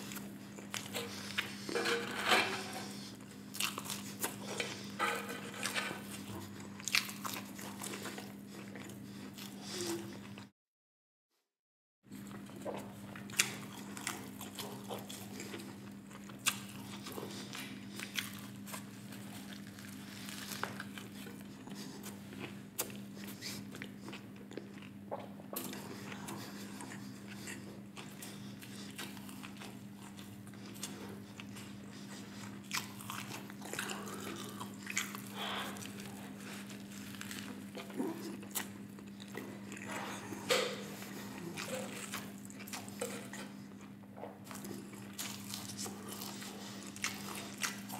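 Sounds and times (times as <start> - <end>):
crunchy biting and chewing: 0.0 - 10.4, 12.3 - 47.9
steady low hum: 12.1 - 47.9.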